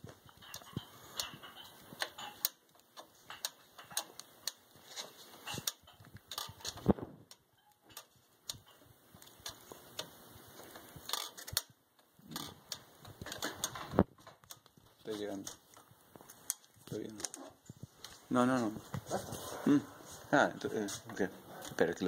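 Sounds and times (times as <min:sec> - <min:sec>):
metal parts clicking and tapping: 0:00.0 - 0:17.5.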